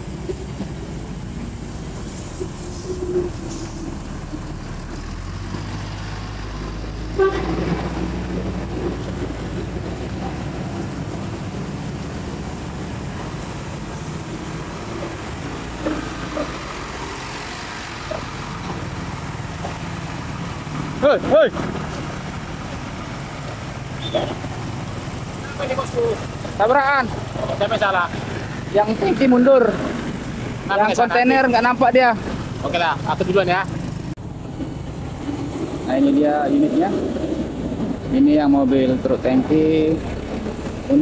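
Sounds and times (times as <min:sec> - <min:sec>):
bus diesel engines droning: 0:00.0 - 0:41.0
short horn toots: 0:07.1 - 0:07.7.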